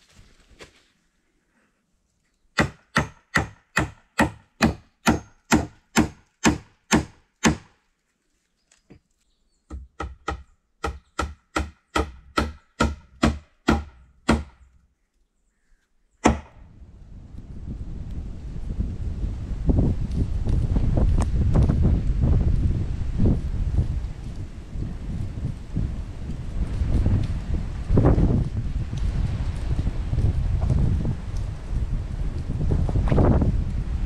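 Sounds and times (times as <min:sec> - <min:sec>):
hammering on wood: 0:02.6 - 0:07.7, 0:09.7 - 0:14.6, 0:16.2 - 0:16.6
wind on microphone: 0:16.6 - 0:34.0.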